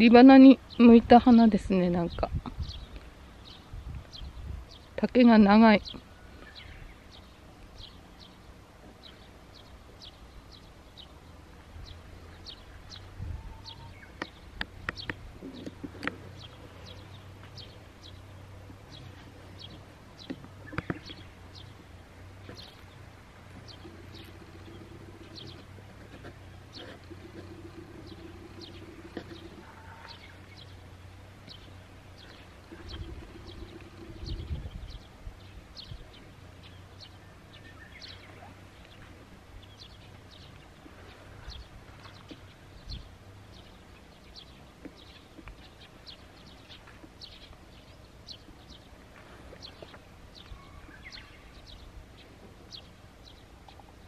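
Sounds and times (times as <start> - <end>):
birds chirping: 0.0 - 54.0.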